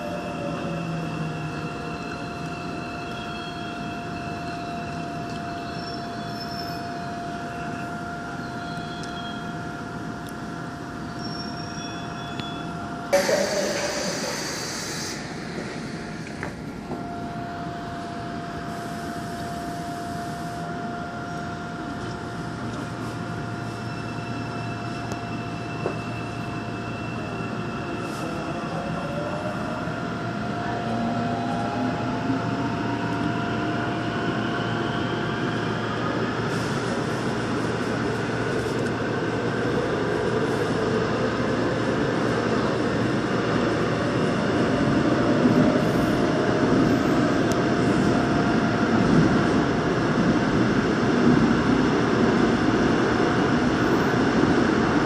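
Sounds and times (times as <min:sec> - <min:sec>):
train running rumble: 0:07.9 - 0:19.8.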